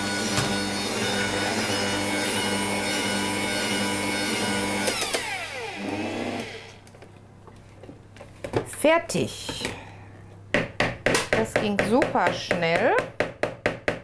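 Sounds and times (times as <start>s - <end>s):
stand mixer motor whine: 0.0s - 6.8s.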